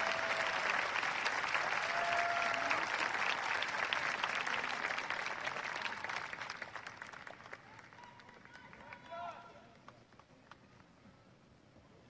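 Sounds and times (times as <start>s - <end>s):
audience applause: 0.0s - 9.3s.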